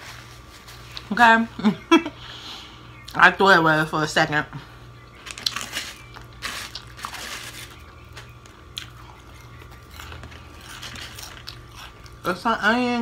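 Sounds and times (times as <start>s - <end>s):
chewing and crunching food: 0.1s - 1.1s, 4.7s - 12.6s.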